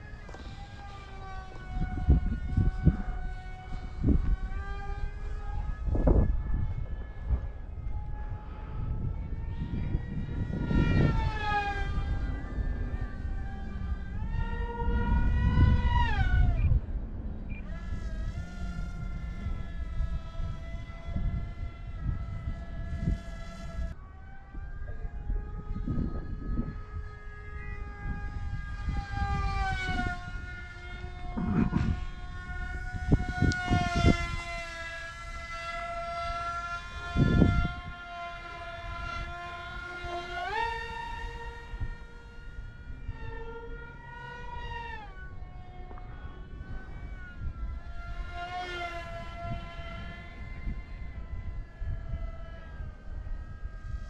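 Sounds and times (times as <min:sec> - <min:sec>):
electric motor and propeller whining: 0:00.0 - 0:54.0
wind buffeting microphone: 0:00.0 - 0:54.0.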